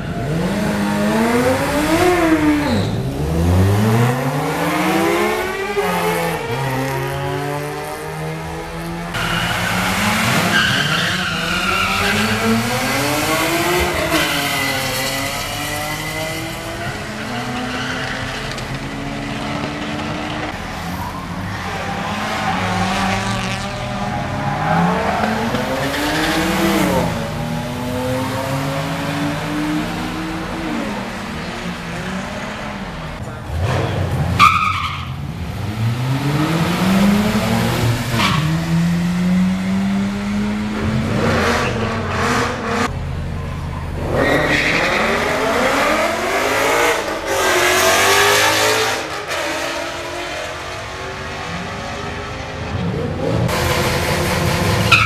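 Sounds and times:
car accelerating: 0:00.0 - 0:55.0
car engines revving: 0:00.0 - 0:55.0
tyre squeal from burnouts: 0:02.4 - 0:03.1, 0:09.2 - 0:12.7.

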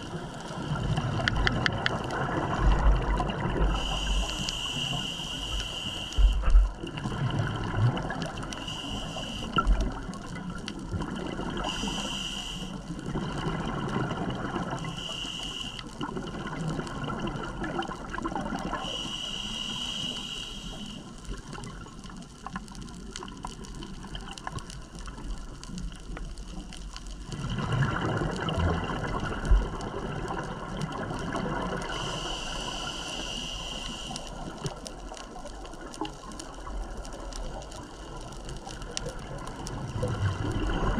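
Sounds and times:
bubbling exhaled air underwater: 0:00.0 - 0:40.9
regulator breath hisses: 0:03.7 - 0:06.6, 0:08.6 - 0:09.7, 0:11.6 - 0:12.8, 0:14.8 - 0:15.9, 0:18.8 - 0:21.2, 0:31.8 - 0:34.5.

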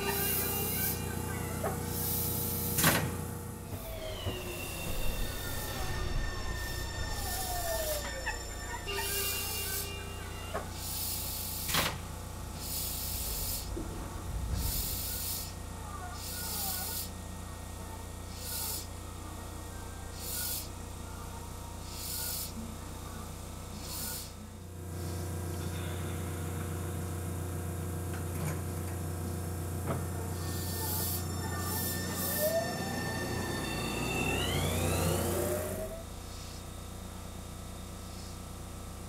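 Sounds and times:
train equipment low hum: 0:00.0 - 0:39.0
short air hisses: 0:10.7 - 0:11.9, 0:14.6 - 0:15.6.

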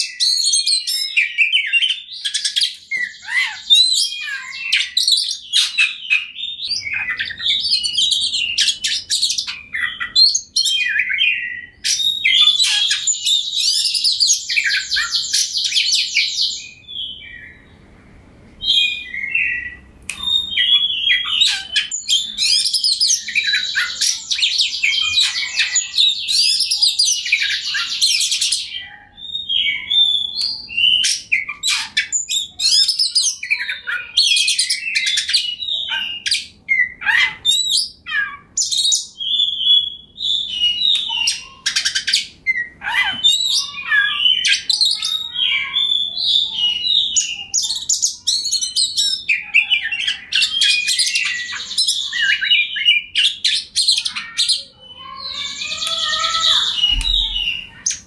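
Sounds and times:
bird singing: 0:00.0 - 0:17.9, 0:18.6 - 0:58.0
bird fast trilling: 0:55.0 - 0:58.0.

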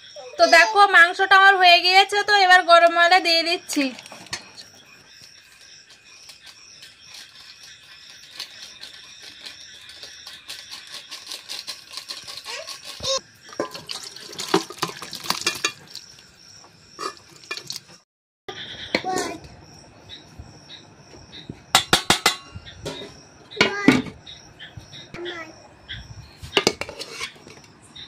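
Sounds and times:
metal spoon scraping pot: 0:26.4 - 0:27.7.

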